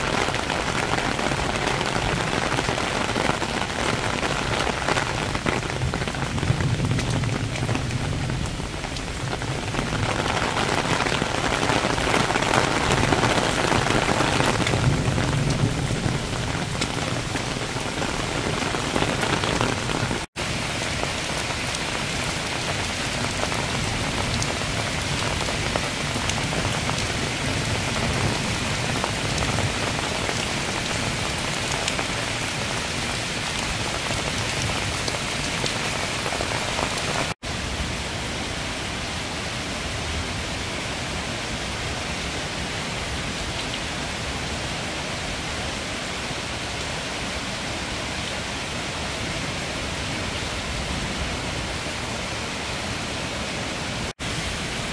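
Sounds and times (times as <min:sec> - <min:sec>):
heavy rain hissing: 0:00.0 - 0:39.6.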